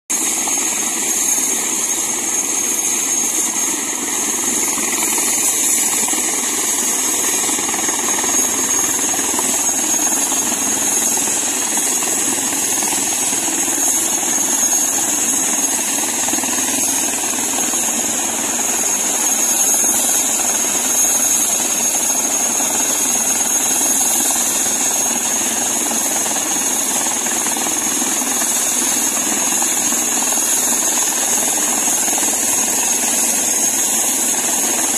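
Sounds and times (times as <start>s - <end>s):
helicopter running on ground: 0.1s - 34.9s.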